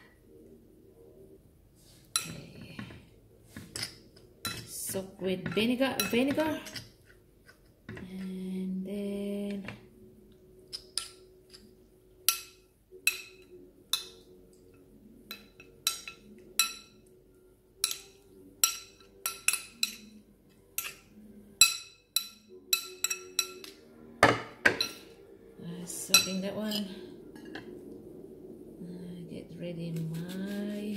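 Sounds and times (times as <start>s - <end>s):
metal spoon clinking in ceramic bowl: 3.8s - 4.7s, 5.4s - 6.9s, 12.3s - 14.3s, 15.3s - 17.1s, 17.8s - 25.1s, 26.1s - 27.6s.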